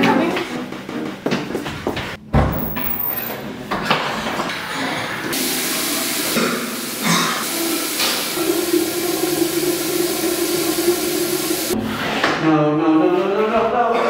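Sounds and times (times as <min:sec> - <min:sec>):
tap water running into sink: 0:05.3 - 0:11.8.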